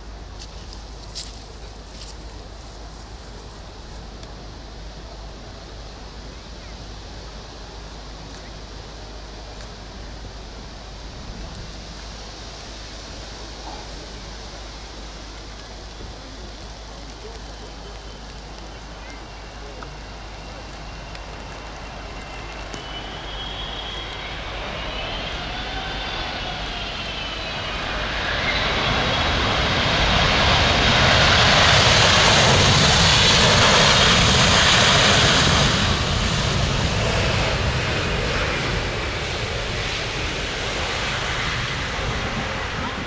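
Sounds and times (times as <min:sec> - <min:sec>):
jet engine roar on landing: 0:00.0 - 0:43.0
jet engine whine: 0:00.0 - 0:43.0.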